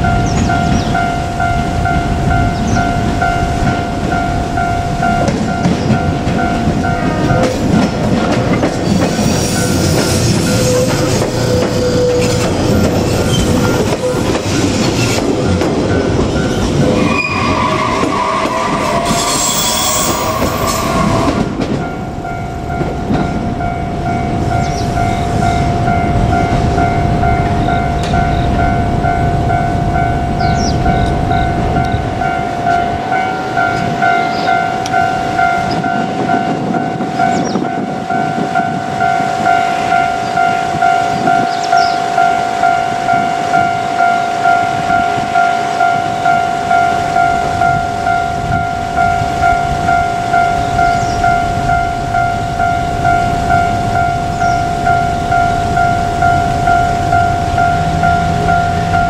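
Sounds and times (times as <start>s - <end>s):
train wheels clattering on rails: 0.0s - 29.1s
level crossing warning bell: 0.0s - 59.0s.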